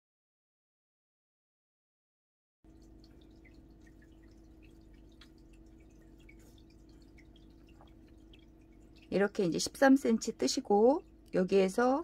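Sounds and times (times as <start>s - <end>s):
low room hum: 2.7s - 12.0s.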